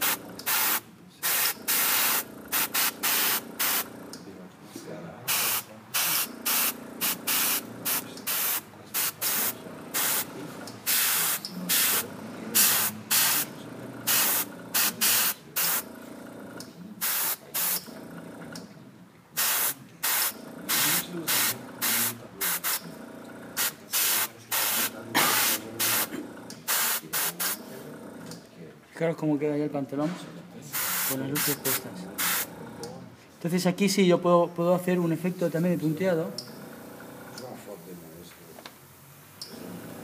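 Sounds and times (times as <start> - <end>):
airbrush spraying hissing bursts: 0.0 - 3.9, 5.3 - 12.0, 12.6 - 13.5, 14.1 - 15.8, 17.0 - 17.9, 19.4 - 22.8, 23.6 - 26.1, 26.7 - 27.6, 30.8 - 32.5.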